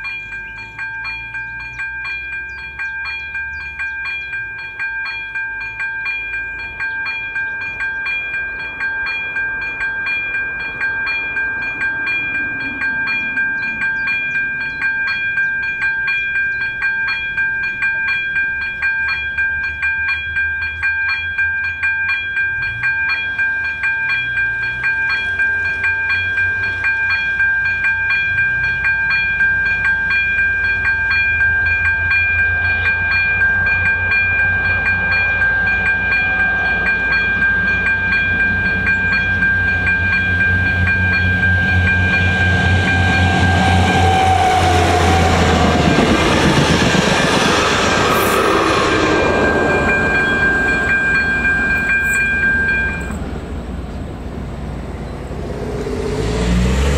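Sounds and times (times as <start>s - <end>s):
level crossing bell ringing: 0.0s - 46.2s, 47.4s - 53.4s
train rumble: 0.0s - 56.9s.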